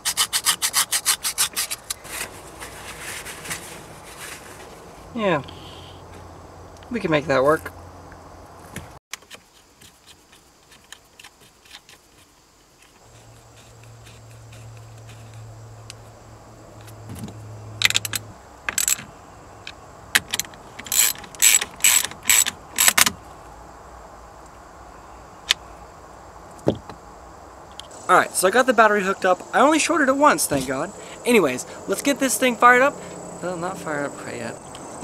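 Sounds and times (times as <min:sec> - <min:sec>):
wrench clicking: 0:17.8 - 0:19.0, 0:20.2 - 0:23.1.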